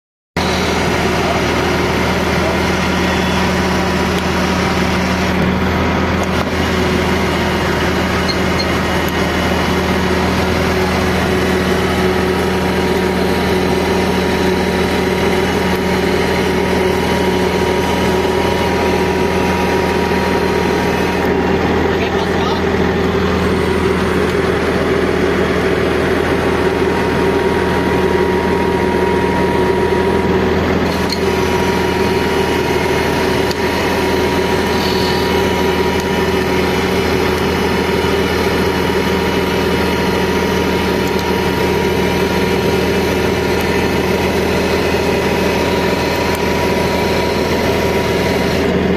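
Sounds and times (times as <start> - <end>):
diesel engine running: 0.4 - 48.9
faint high whine: 2.4 - 4.0.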